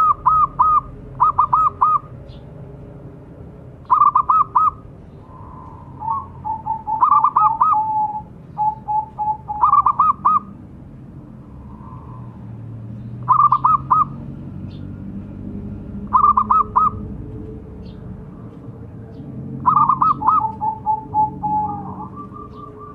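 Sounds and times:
dove cooing: 0.0s - 2.1s, 3.9s - 10.6s, 13.3s - 14.2s, 16.0s - 17.2s, 19.5s - 22.9s.

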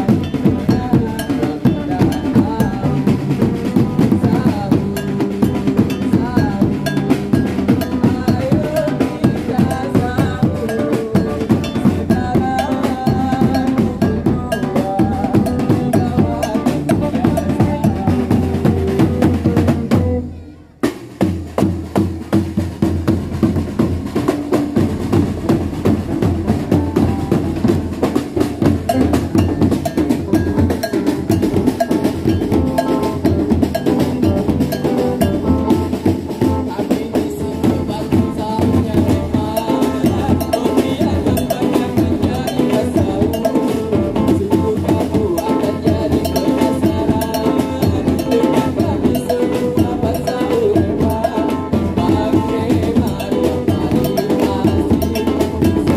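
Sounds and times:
fast drumming: 0.0s - 55.9s
held melodic tones: 25.7s - 55.9s.

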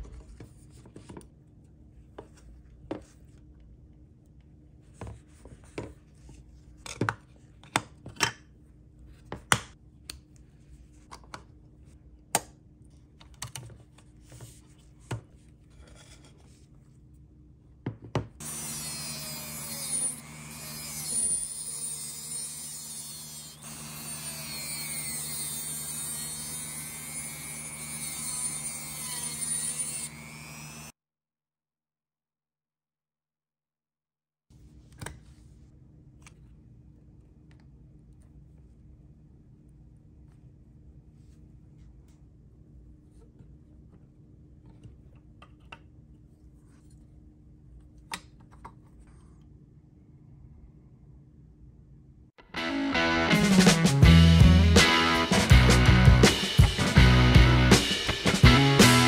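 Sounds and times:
rotary tool cutting metal tube: 18.4s - 30.9s.

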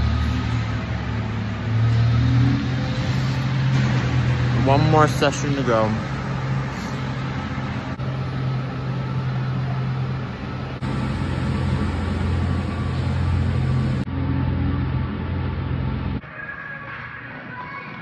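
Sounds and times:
noisy rush: 0.0s - 18.0s
low machine hum: 5.6s - 16.2s.

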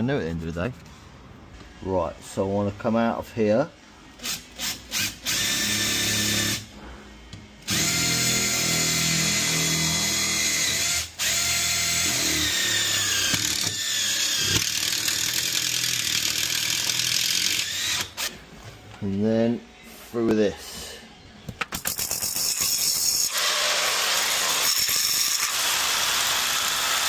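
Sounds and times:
cordless drill boring: 5.0s - 6.6s, 7.7s - 18.3s, 22.4s - 27.0s.

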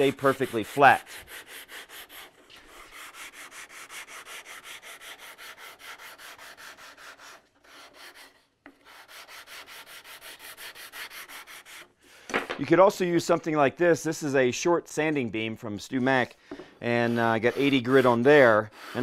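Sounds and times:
sandpaper rubbing on wood: 0.0s - 12.0s, 16.8s - 19.0s.

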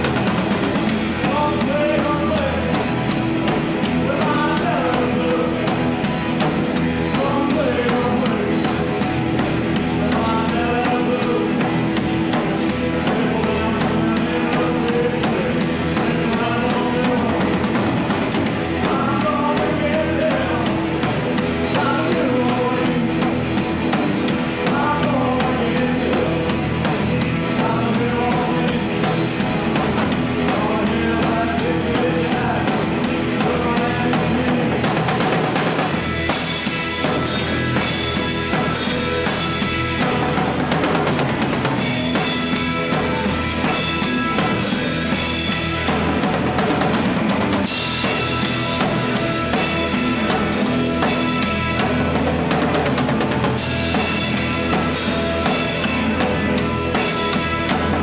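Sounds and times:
bass guitar: 0.0s - 58.0s
drum kit: 0.0s - 58.0s
electric guitars: 0.0s - 58.0s
person singing: 1.1s - 2.9s, 3.8s - 23.6s, 24.2s - 35.3s.

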